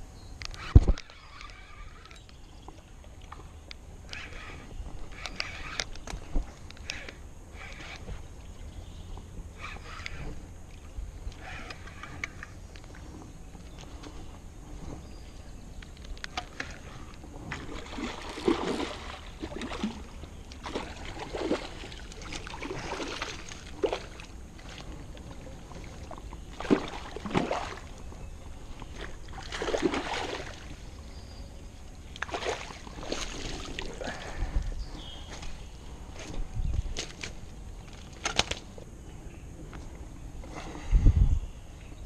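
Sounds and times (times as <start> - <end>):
fish splashing in water: 17.5 - 24.9, 25.8 - 28.0, 28.9 - 30.8, 32.2 - 34.3.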